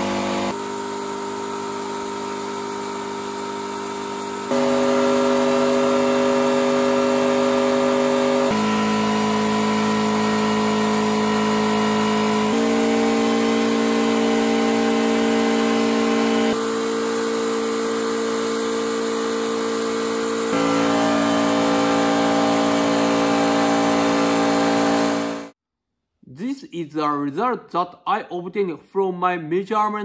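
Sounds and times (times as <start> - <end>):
car engine revving high: 4.5 - 16.6, 18.0 - 25.6.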